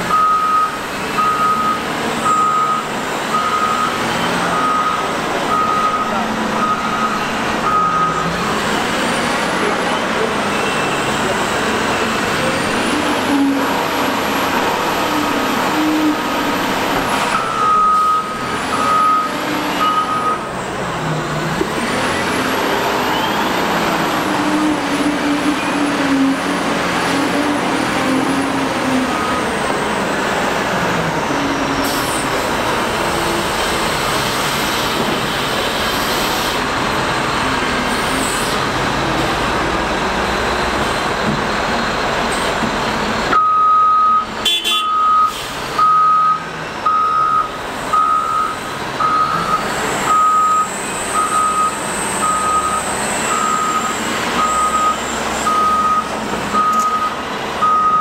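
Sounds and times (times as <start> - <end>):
diesel engine running: 0.0 - 58.0
reversing alarm beeping: 0.1 - 8.4, 17.4 - 20.5, 29.1 - 29.6, 43.3 - 58.0.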